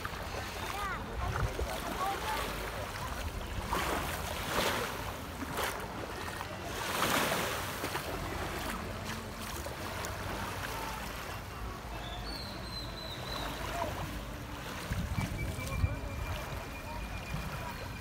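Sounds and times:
small waves washing onto sand: 0.0s - 18.0s
wind rumbling on microphone: 14.4s - 18.0s.

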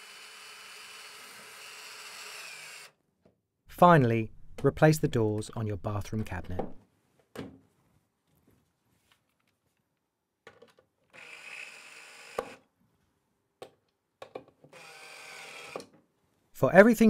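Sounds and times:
drill driving a screw: 0.0s - 3.0s, 11.1s - 12.6s, 14.7s - 15.9s.

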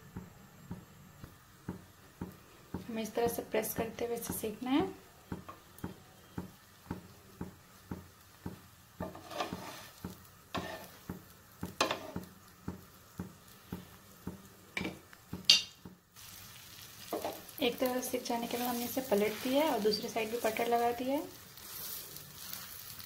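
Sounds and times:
butter sizzling: 0.0s - 23.0s
spatula knocking on griddle: 1.6s - 4.6s, 5.2s - 16.1s
spatula scraping griddle: 8.5s - 12.9s, 18.3s - 23.0s.

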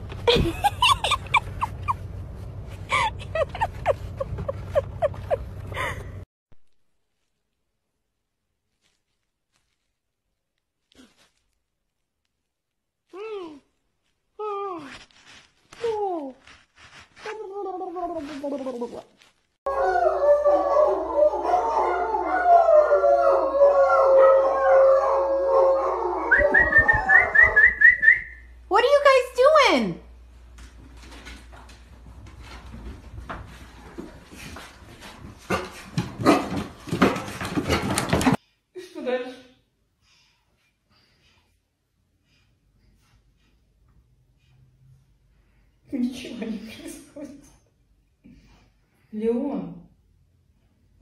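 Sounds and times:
dogs howling: 19.7s - 27.8s.

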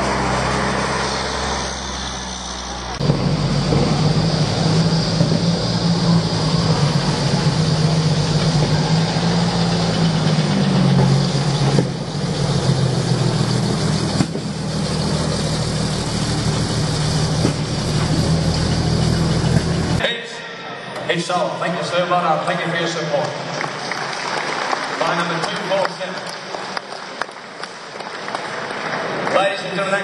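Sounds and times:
heavy truck engine running: 0.0s - 20.0s.

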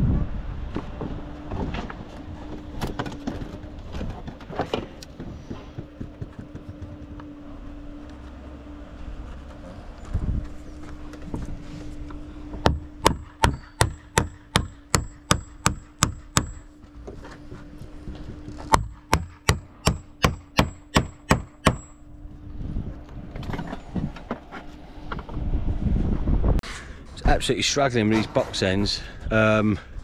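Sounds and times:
hammer striking nails: 12.6s - 16.7s, 18.6s - 22.0s.

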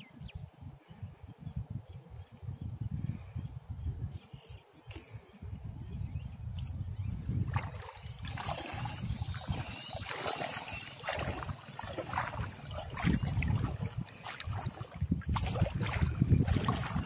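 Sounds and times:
water splashing around wading legs: 6.6s - 17.0s.

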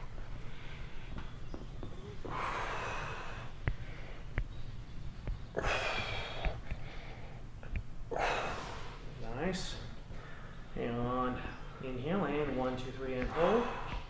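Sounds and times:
person breathing hard: 0.3s - 1.2s, 2.2s - 4.4s, 5.5s - 7.5s, 13.2s - 14.0s.

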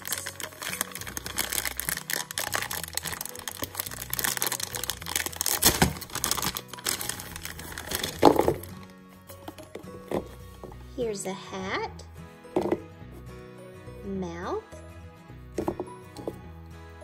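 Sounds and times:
plastic bag crinkling and tearing: 0.0s - 8.9s
plastic toy parts shifting: 0.0s - 10.4s.

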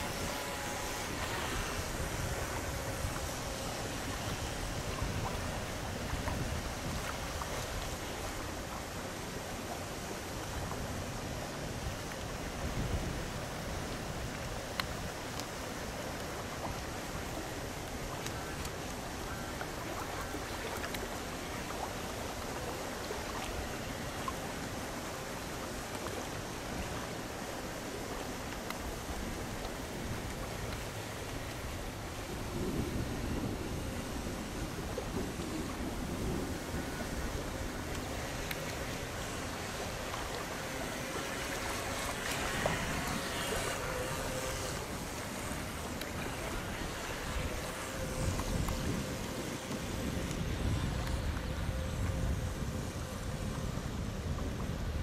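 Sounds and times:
small electric motor humming: 0.0s - 6.8s, 36.6s - 53.5s
choppy water lapping and splashing: 0.0s - 55.0s
wind on microphone: 0.0s - 55.0s.

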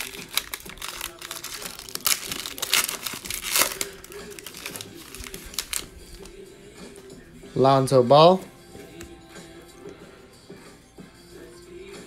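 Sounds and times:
foil wrapper crinkling: 0.0s - 6.4s.

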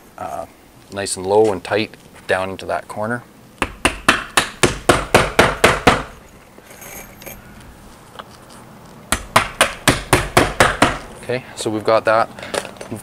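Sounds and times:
hammer striking nails: 3.6s - 6.2s, 9.1s - 11.1s.

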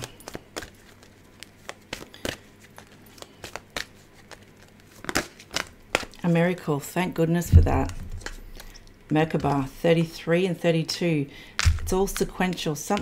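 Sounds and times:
cards being shuffled: 0.0s - 6.3s, 7.5s - 10.2s, 11.6s - 13.0s.

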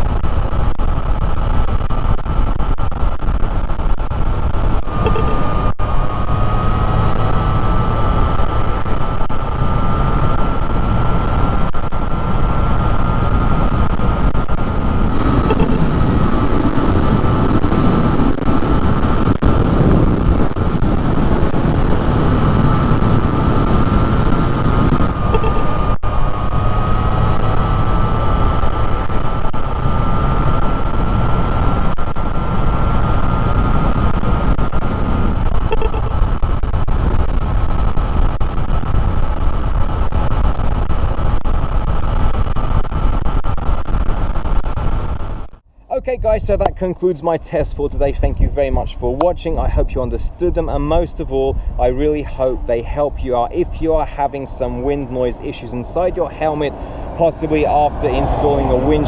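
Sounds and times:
motorcycle engine running steadily: 0.0s - 46.8s
wind rushing over motorcycle helmet: 0.0s - 46.8s.

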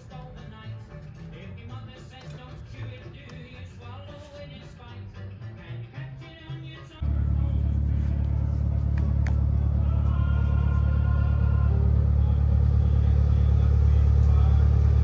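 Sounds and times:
engine rumbling: 6.6s - 15.0s.

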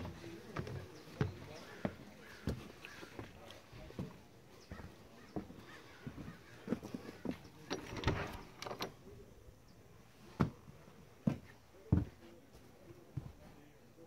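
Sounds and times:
footsteps on wooden floor: 0.0s - 7.5s, 10.4s - 13.5s
wooden door knocks and clunks: 7.6s - 9.0s.

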